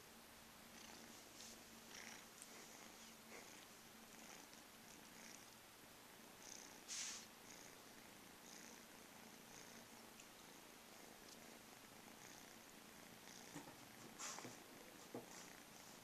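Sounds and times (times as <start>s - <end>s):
cats purring: 0.6s - 16.0s
hiss-like sound: 6.8s - 7.4s.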